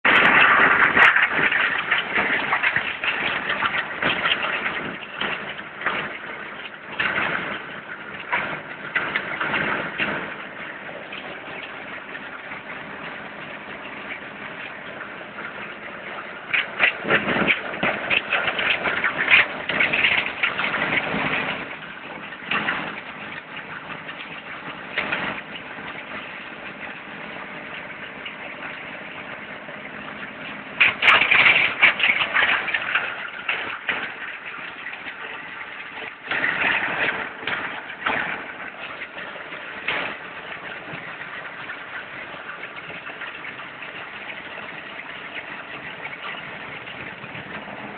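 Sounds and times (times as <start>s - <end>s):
plastic grinder engine running: 0.0s - 13.6s.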